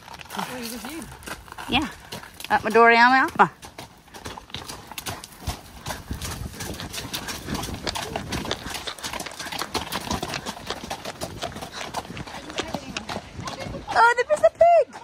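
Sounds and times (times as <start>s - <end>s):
horse hooves on gravel: 0.0s - 15.0s.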